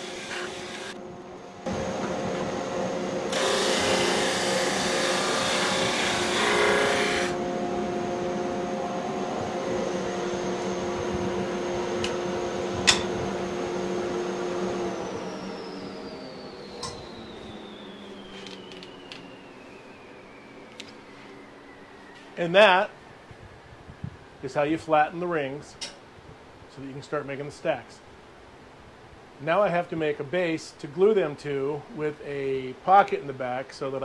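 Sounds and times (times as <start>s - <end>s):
drum sander humming: 0.0s - 21.4s
machine winding down: 0.0s - 22.3s.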